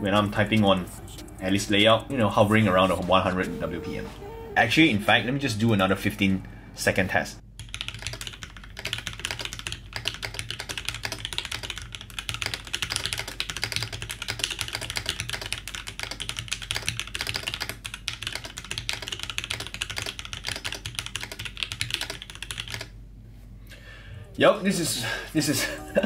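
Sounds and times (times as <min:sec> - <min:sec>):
mechanical keyboard typing: 0:07.6 - 0:22.9.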